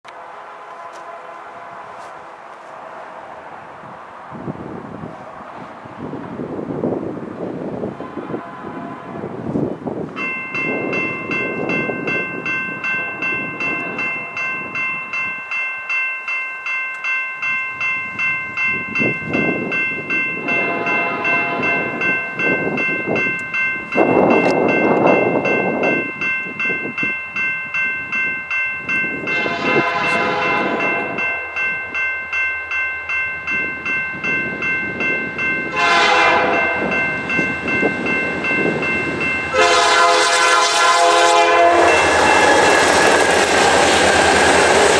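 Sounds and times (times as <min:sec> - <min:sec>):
distant train horn blasts: 0:00.1 - 0:03.2, 0:07.9 - 0:09.5, 0:20.4 - 0:22.0, 0:29.3 - 0:31.5, 0:35.7 - 0:37.0, 0:39.5 - 0:43.0
level-crossing warning bell ringing: 0:10.0 - 0:44.9
loud rush of noise: 0:41.8 - 0:44.9.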